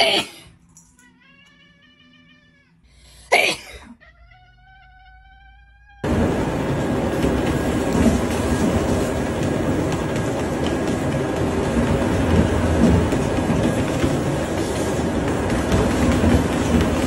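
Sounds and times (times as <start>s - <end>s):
cat meowing: 1.0s - 3.2s, 3.8s - 6.1s
treadmill whirring: 6.0s - 17.0s.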